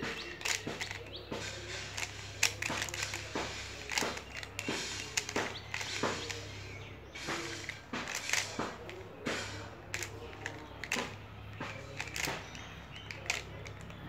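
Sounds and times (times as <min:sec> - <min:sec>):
plastic puzzle clicking and clacking: 0:00.0 - 0:14.0.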